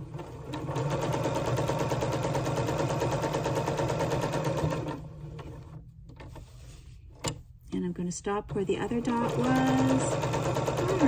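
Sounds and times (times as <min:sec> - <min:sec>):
sewing machine stitching: 0:00.0 - 0:05.8, 0:08.5 - 0:11.0.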